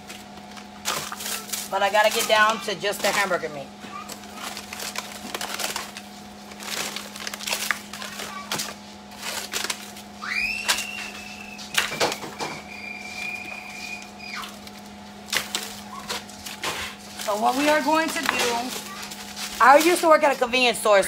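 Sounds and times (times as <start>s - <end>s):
frozen packs knocking: 0.0s - 20.7s
plastic crinkling: 0.0s - 20.9s
freezer hum: 0.0s - 21.0s
thin high whine: 10.2s - 14.6s.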